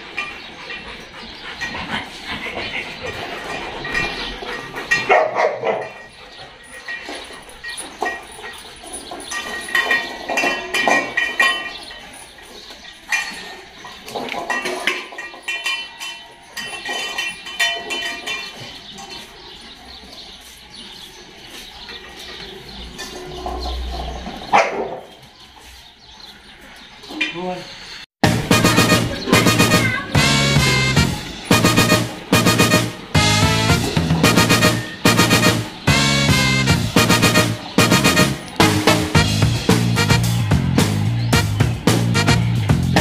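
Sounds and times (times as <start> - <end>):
dogs barking: 0.0 - 10.5, 22.1 - 25.2.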